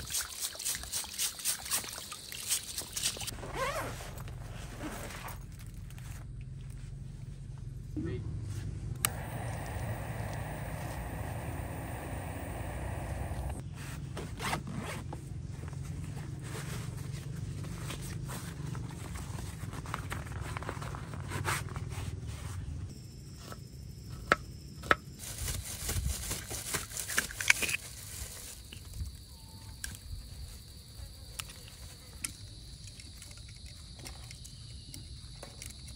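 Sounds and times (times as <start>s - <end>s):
gear rustling and scraping: 3.0s - 7.5s
zipper being pulled: 3.3s - 5.4s
low rumble: 8.7s - 13.6s
sharp clicks: 9.0s - 13.6s
insect chirring: 9.1s - 13.6s, 28.6s - 35.9s.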